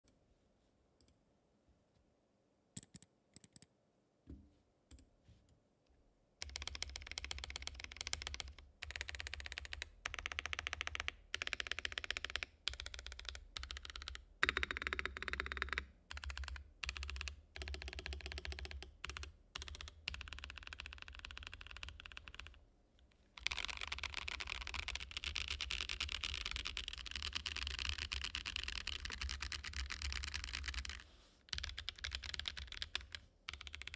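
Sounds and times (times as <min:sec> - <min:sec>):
fast typing on mechanical keyboard: 0:06.4 - 0:22.6, 0:23.4 - 0:33.9.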